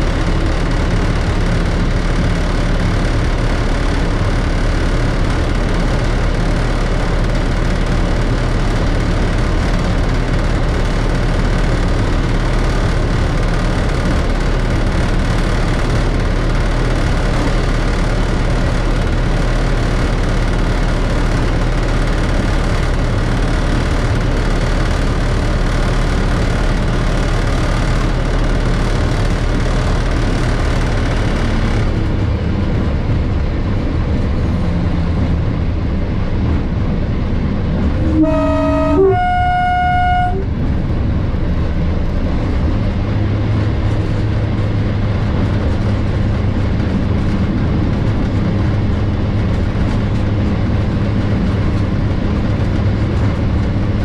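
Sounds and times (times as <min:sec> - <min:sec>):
diesel locomotive engine running: 0:00.0 - 0:54.0.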